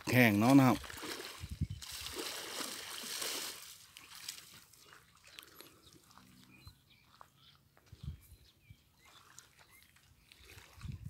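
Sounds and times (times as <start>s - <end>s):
water splashing and sloshing: 0.0s - 6.5s, 9.0s - 11.0s.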